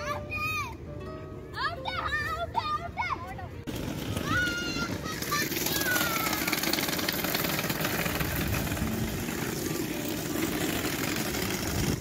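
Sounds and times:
hard wheels rolling on pavement: 0:03.3 - 0:12.0.

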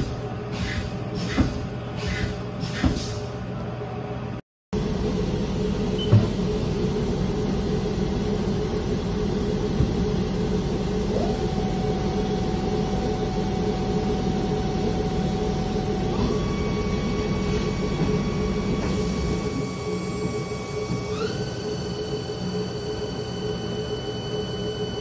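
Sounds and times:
lathe spindle humming with whine: 0:04.8 - 0:25.0.

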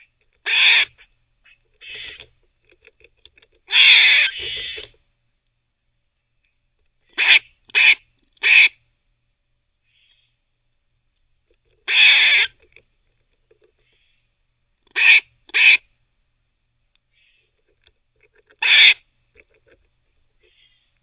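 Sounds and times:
squirrel barking: 0:00.0 - 0:02.2, 0:03.7 - 0:04.9, 0:07.2 - 0:08.8, 0:11.9 - 0:12.6, 0:14.9 - 0:15.9, 0:18.6 - 0:19.0.

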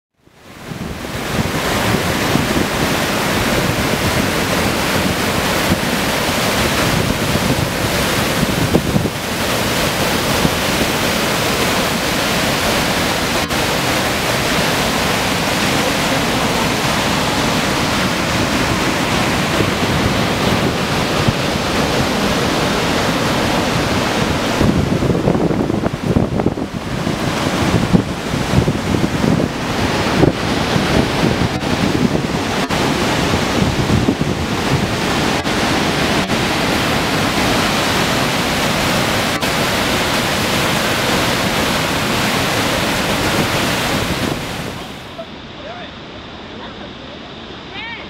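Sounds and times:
waterfall rushing: 0:00.2 - 0:48.0
wind buffeting microphone: 0:00.4 - 0:45.1.

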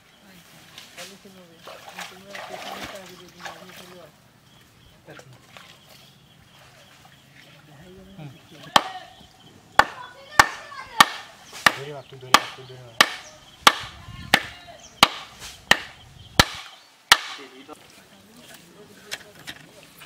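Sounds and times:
wooden mallet pounding stake: 0:08.7 - 0:09.0, 0:09.8 - 0:17.5.

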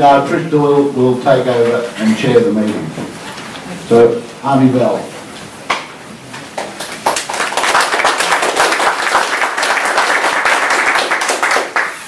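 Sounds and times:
audience applauding: 0:06.5 - 0:12.0.

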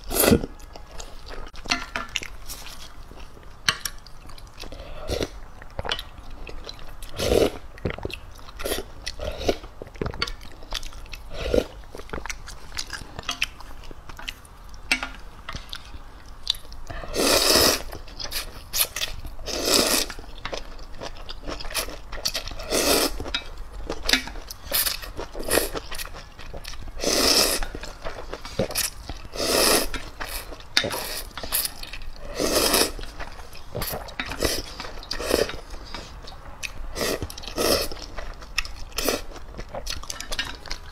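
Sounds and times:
chewing: 0:00.0 - 0:40.9
noodles being slurped: 0:17.1 - 0:20.2, 0:27.0 - 0:27.8, 0:28.4 - 0:36.2.

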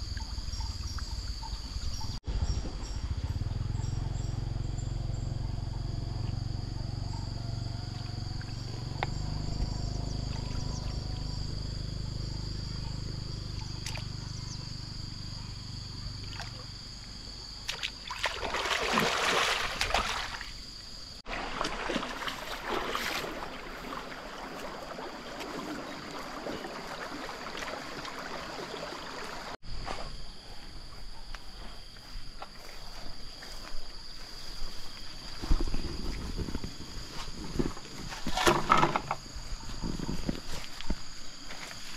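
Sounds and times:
high insect drone: 0:00.0 - 0:41.9
water splashing and sloshing: 0:07.9 - 0:11.3, 0:13.6 - 0:14.2, 0:16.2 - 0:16.7, 0:17.6 - 0:29.6.

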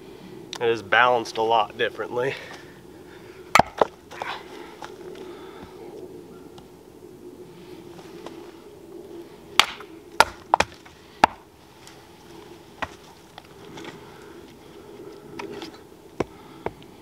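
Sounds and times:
axe chopping wood: 0:03.5 - 0:03.9, 0:09.6 - 0:11.4.

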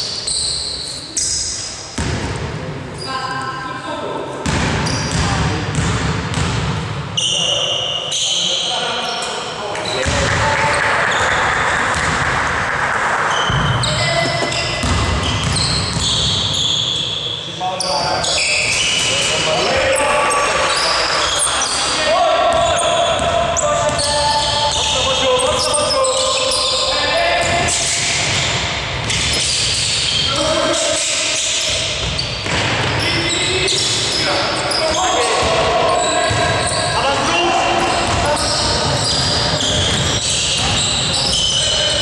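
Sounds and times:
short high squeaks: 0:00.0 - 0:01.7, 0:07.2 - 0:11.4, 0:13.3 - 0:19.3, 0:27.7 - 0:32.4
basketball bouncing on court floor: 0:02.0 - 0:02.6, 0:04.4 - 0:07.0, 0:10.0 - 0:12.4, 0:13.3 - 0:16.6, 0:22.5 - 0:25.7, 0:32.0 - 0:33.0, 0:34.8 - 0:41.4
players calling out: 0:07.2 - 0:42.0.

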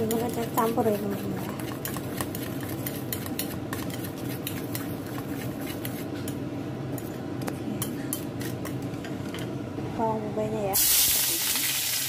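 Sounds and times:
wet swishing of beaten egg: 0:00.0 - 0:06.2.

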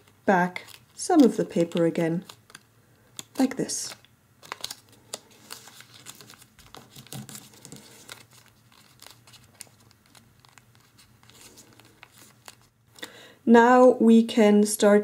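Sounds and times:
paper rustling and crinkling: 0:00.0 - 0:12.8.

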